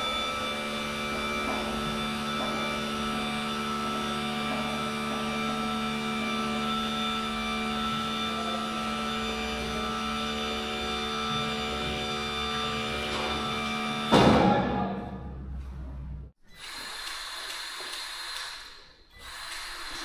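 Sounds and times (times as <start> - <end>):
electric tarp motor humming: 0.0 - 14.2.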